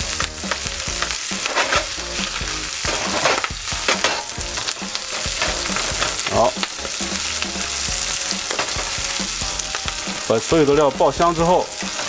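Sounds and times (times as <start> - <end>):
aromatics sizzling in hot oil: 0.0 - 12.0
wooden spatula scraping pan: 1.3 - 2.2, 2.8 - 7.1.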